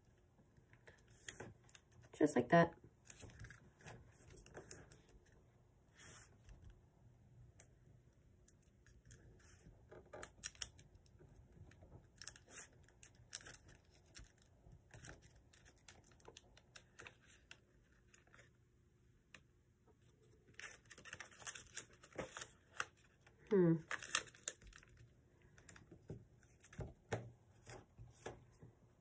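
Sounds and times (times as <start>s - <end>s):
paper rustling and crinkling: 20.4s - 28.7s.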